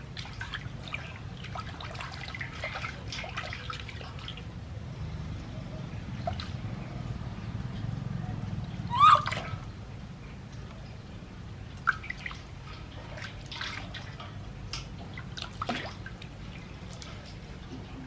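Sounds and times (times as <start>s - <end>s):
water splashing in metal basin: 0.0s - 4.6s, 6.0s - 6.7s, 11.7s - 17.4s.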